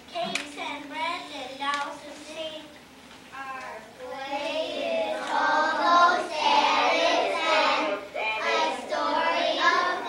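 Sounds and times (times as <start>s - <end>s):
young children singing: 3.6s - 10.0s.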